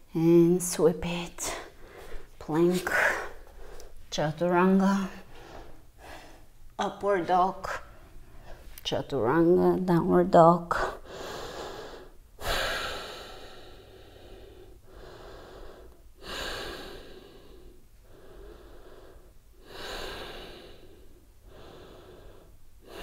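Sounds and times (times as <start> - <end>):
woman breathing slowly: 1.4 - 4.1, 4.8 - 6.8, 7.9 - 8.7, 11.0 - 23.0.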